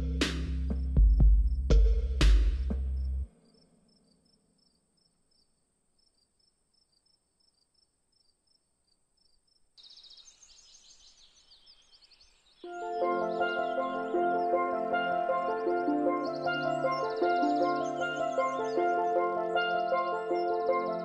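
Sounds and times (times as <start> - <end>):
insects chirping: 3.0 - 21.0
background music: 12.7 - 21.0.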